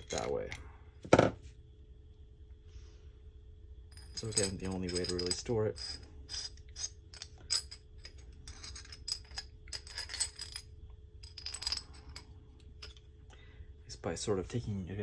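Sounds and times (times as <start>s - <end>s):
metal parts clinking: 0.0s - 0.6s, 3.9s - 13.1s.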